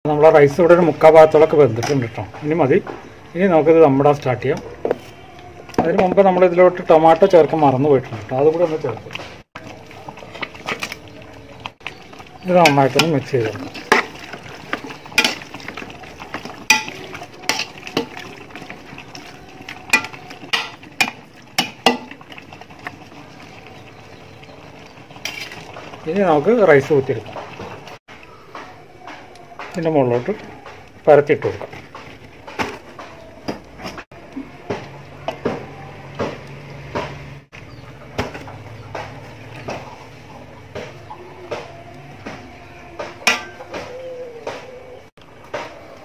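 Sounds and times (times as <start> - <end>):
spoon stirring thick mixture: 0.2 - 28.0, 28.7 - 36.6
spoon clanking on metal pot: 8.5 - 23.0, 43.0 - 44.0
metal ladle knocking on pot: 16.6 - 18.3, 19.9 - 22.2, 43.0 - 43.9.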